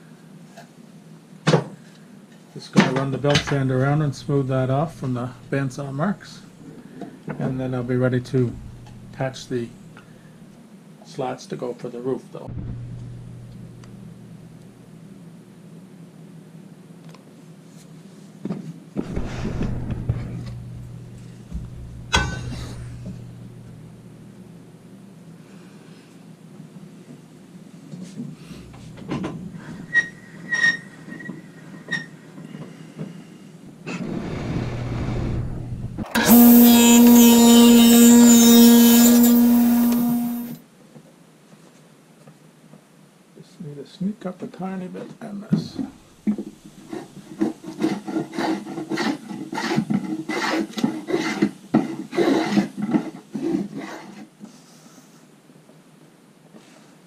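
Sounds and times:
saw tilt mechanism grinding: 36.0 - 40.6
hand plane shaving wood: 36.2 - 40.6, 47.0 - 54.3.

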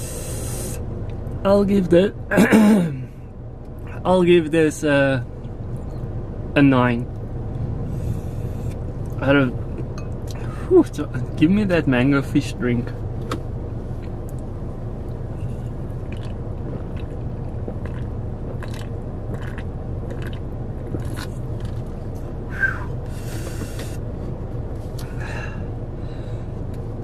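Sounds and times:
steady low hum: 0.0 - 27.0
person drinking and swallowing: 16.1 - 21.3
breathy exhale: 25.0 - 26.6.

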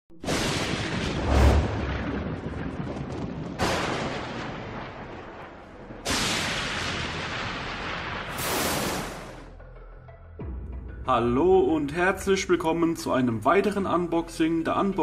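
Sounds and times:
thunder crashes: 0.2 - 9.5.

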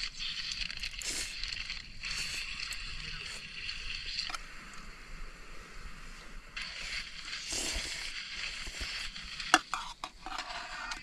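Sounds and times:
slurping noodles: 0.0 - 4.3, 6.6 - 11.0.

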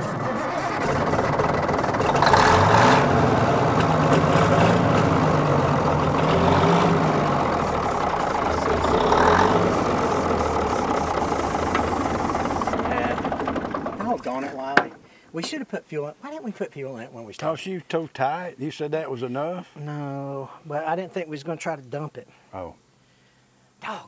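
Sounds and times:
diesel engine running rough: 0.0 - 15.1.

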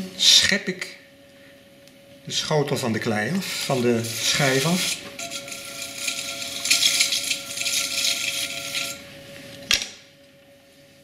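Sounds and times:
potter's wheel motor whine: 2.0 - 10.6
hands scraping wet clay: 3.4 - 9.0.

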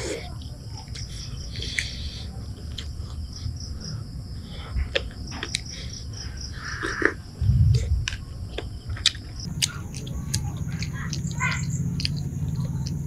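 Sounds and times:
person chewing wetly: 8.5 - 13.0.

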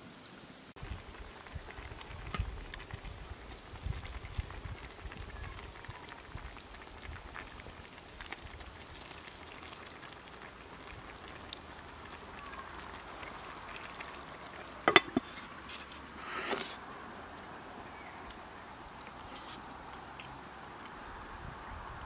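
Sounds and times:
stew simmering: 0.8 - 21.7
clay lid clinking on pot: 14.8 - 15.4
spoon clicking against clay pot: 14.9 - 15.3.

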